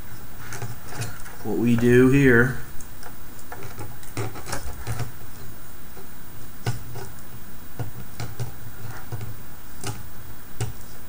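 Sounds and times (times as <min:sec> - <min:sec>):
clicks and knocks of handling: 0:02.8 - 0:05.2, 0:07.8 - 0:10.0.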